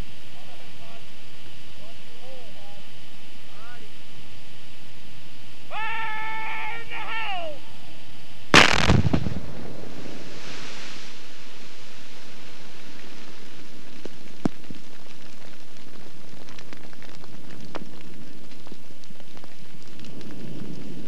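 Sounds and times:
quarry blast bang: 8.6s - 10.2s
rock and dirt raining down: 8.6s - 21.0s
stones landing clicks: 13.9s - 21.0s.

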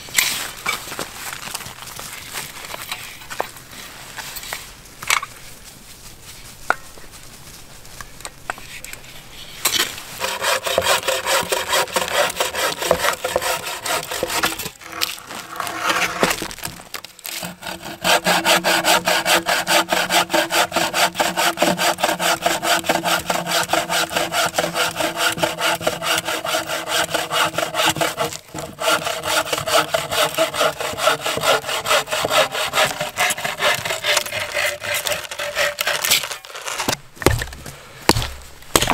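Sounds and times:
bow saw cutting log: 10.2s - 37.5s.

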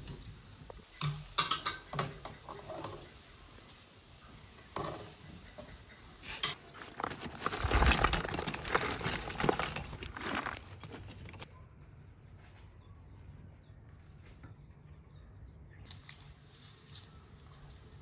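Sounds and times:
charcoal lumps clattering: 6.5s - 11.5s.

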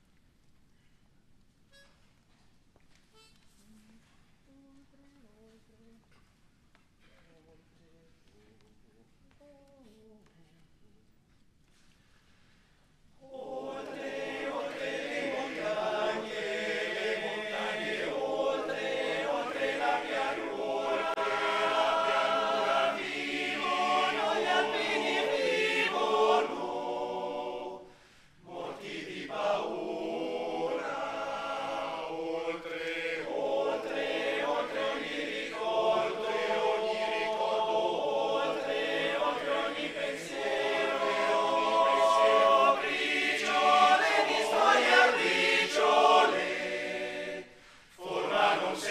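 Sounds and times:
male choir singing unaccompanied: 13.3s - 48.9s.

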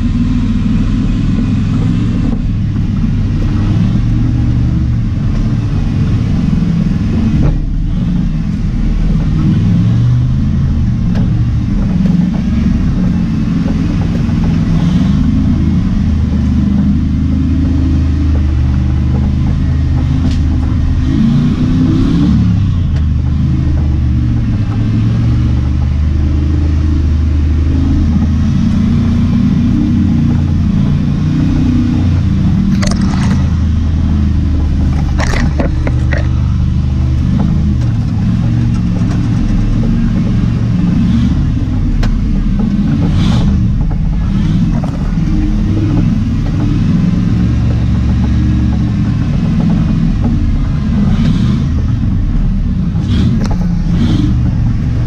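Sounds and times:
engine running at low revs: 0.0s - 55.0s
branches scraping against vehicle: 32.7s - 38.0s.

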